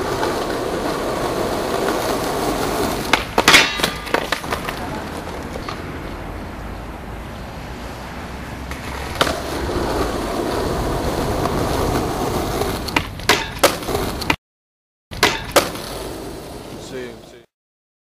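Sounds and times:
skateboard clacks: 0:00.0 - 0:06.2, 0:08.7 - 0:14.4, 0:15.2 - 0:16.2
skateboard wheels rolling on concrete: 0:00.0 - 0:14.4, 0:15.1 - 0:17.5.

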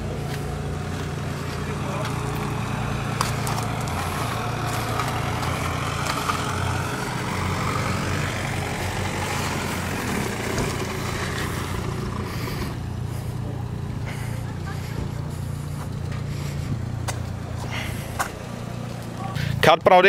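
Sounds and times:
car engine idling: 0:00.0 - 0:20.0.

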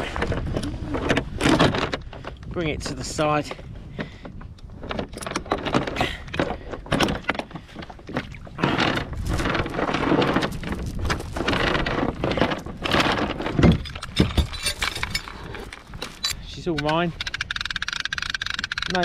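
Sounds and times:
anchor chain clinking on kayak hull: 0:04.0 - 0:19.0.

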